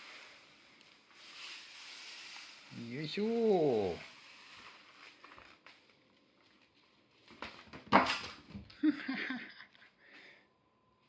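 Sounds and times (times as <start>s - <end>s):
hand broom brushing on a mat: 0.0s - 5.3s.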